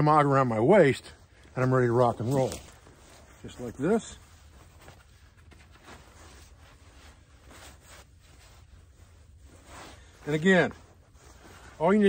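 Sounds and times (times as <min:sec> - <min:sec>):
fabric rustling: 0:01.1 - 0:12.0.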